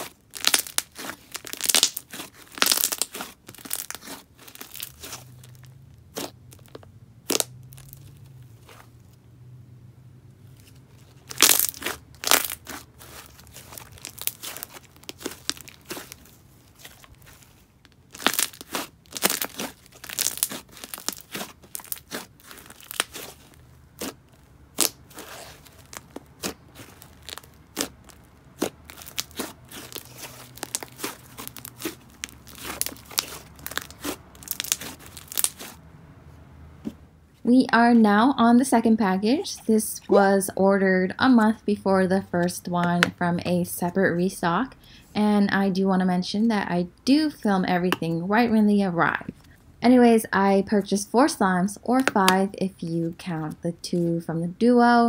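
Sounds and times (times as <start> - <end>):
slime crackling and tearing: 0.0 - 9.0, 10.6 - 35.8.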